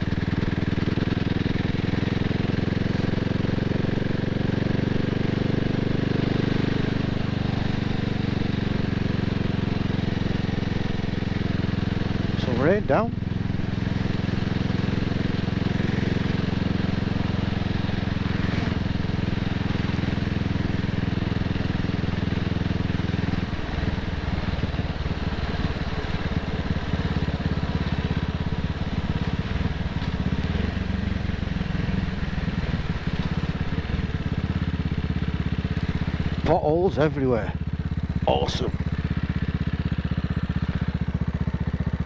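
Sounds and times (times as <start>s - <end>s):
motorcycle engine running: 0.0s - 42.0s.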